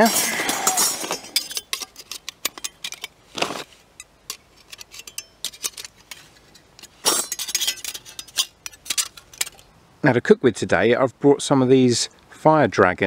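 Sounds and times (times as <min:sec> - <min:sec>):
metal plates clicking and clinking: 0:00.0 - 0:09.7
metal plates scraping: 0:00.0 - 0:09.7.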